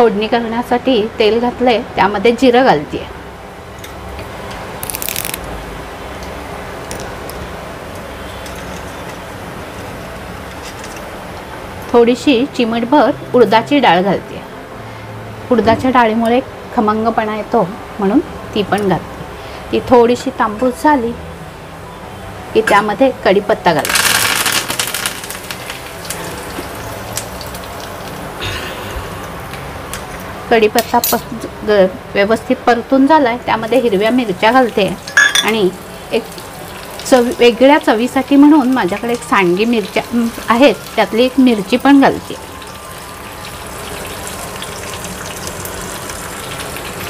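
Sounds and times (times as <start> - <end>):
seeds sizzling and crackling in oil: 4.8 - 5.6, 6.2 - 11.4, 23.8 - 28.4, 33.6 - 47.0.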